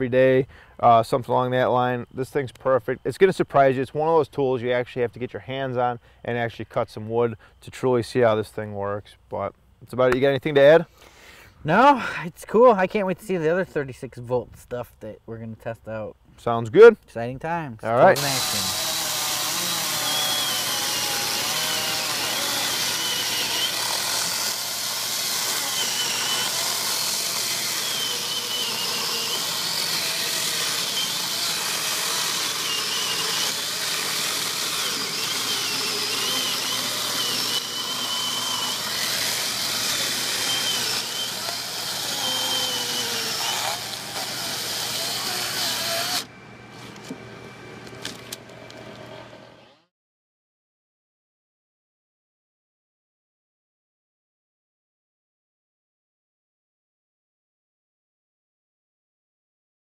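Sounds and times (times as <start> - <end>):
electric chainsaw cutting log: 18.0 - 46.3.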